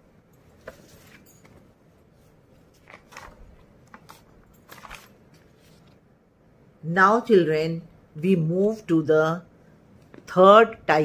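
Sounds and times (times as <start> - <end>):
paper pages rustling: 0.6 - 6.0.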